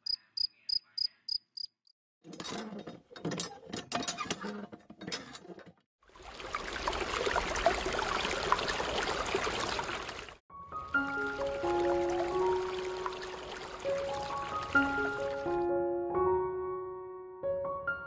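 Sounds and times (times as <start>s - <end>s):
water pouring and splashing: 6.0s - 15.6s.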